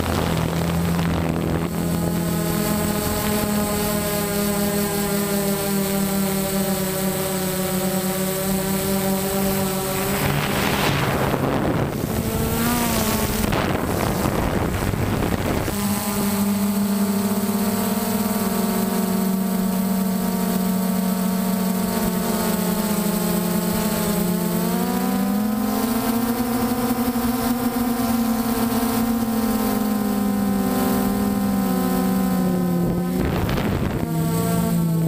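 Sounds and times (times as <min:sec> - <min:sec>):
drone motors whining: 0:00.0 - 0:35.0
rushing noise: 0:09.8 - 0:12.2.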